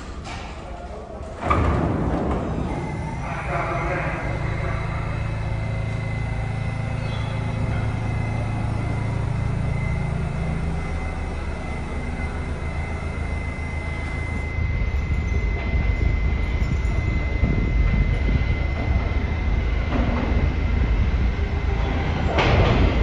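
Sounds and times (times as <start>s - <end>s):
subway train equipment humming: 0.0s - 23.0s
train approaching rumble: 0.0s - 23.0s
thin high tone: 3.1s - 17.4s.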